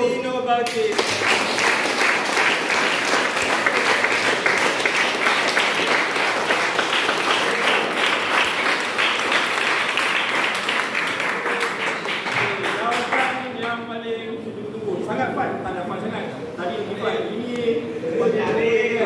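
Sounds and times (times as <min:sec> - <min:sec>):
crowd applauding: 0:00.9 - 0:13.4.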